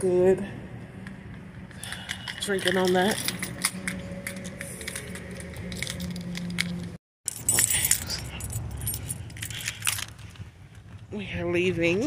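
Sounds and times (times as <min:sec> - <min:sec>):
keys jangling: 0:01.7 - 0:10.9.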